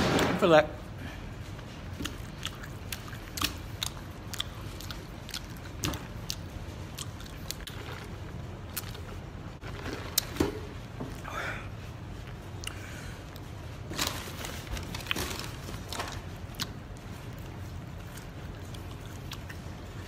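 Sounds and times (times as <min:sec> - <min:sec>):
steady low hum: 0:00.0 - 0:20.0
person chewing: 0:01.6 - 0:11.3, 0:11.9 - 0:14.0, 0:14.8 - 0:20.0
mouth clicks and smacks: 0:01.9 - 0:07.8.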